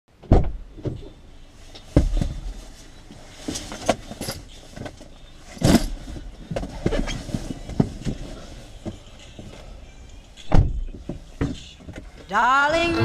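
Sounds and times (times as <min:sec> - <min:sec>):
thump: 0:00.2 - 0:01.0, 0:02.0 - 0:02.4, 0:10.5 - 0:11.6
car door clunk: 0:00.2 - 0:01.1, 0:10.4 - 0:12.2.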